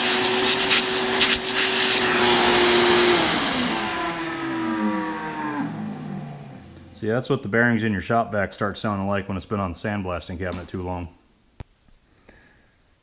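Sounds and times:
vacuum motor winding down: 0.0s - 7.0s
shop vacuum whining: 0.0s - 7.4s.

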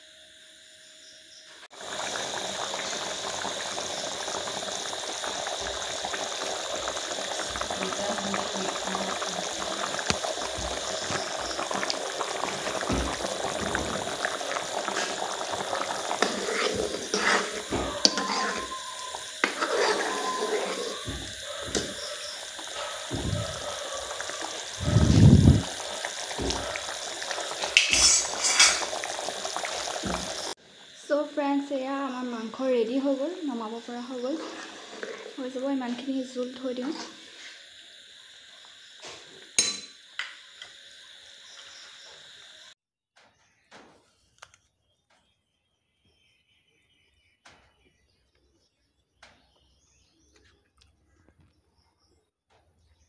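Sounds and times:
curry boiling and bubbling: 1.7s - 42.6s
metal ladle scraping a pan: 14.9s - 22.2s, 27.7s - 28.9s, 34.2s - 35.4s, 36.8s - 37.6s
heavy thump: 23.1s - 23.6s.

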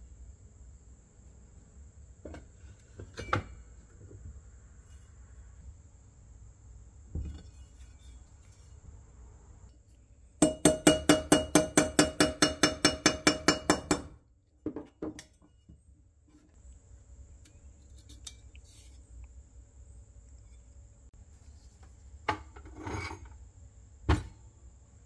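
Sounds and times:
hammer tapping metal punch: 10.4s - 14.2s.

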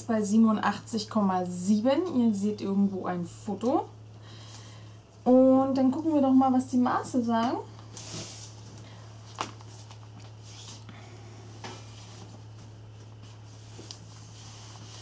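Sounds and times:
steady low hum: 0.0s - 15.0s
clothing rustling: 7.8s - 15.0s.

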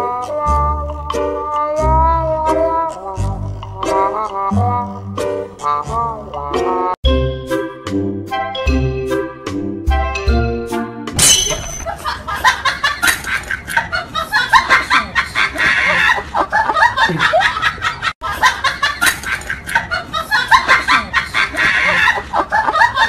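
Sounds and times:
high-pitched laughing and giggling: 11.9s - 23.0s.

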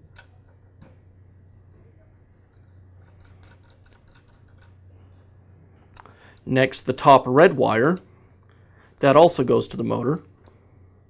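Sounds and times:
small clicks of handled parts: 0.0s - 1.8s, 2.4s - 4.8s, 10.3s - 10.7s
low steady hum: 0.0s - 11.0s.

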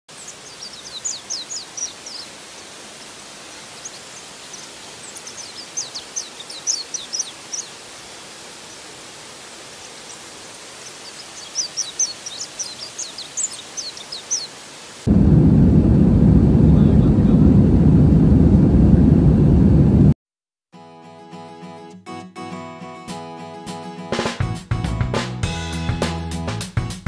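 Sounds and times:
waterfall rushing: 0.1s - 15.2s.

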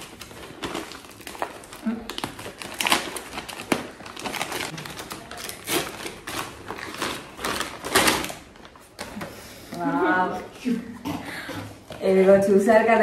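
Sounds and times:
paper mailer rustling and crinkling: 0.0s - 9.7s.

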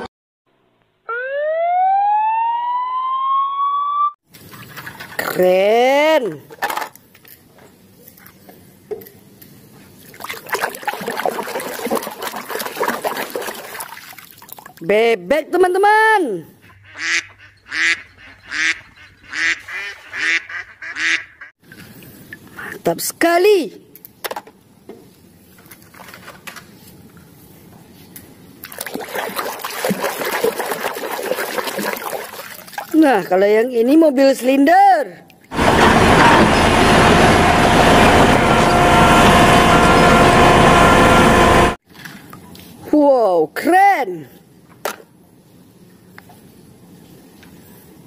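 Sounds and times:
water sloshing and splashing: 4.2s - 5.6s, 9.9s - 14.9s, 28.6s - 33.3s.

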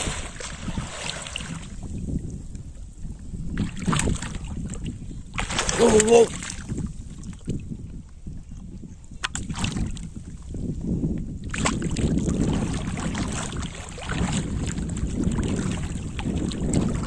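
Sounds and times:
fish thrashing and splashing water: 0.0s - 1.8s, 5.3s - 6.7s, 11.5s - 17.0s.

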